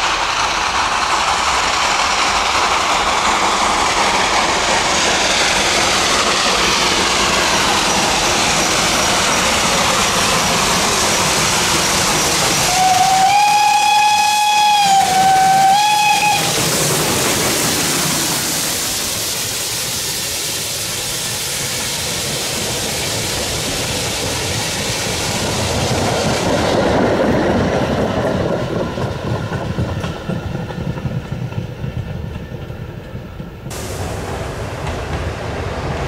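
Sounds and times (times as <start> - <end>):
steam train hiss and rumble: 0.0 - 36.0
steam locomotive whistle: 12.3 - 16.8.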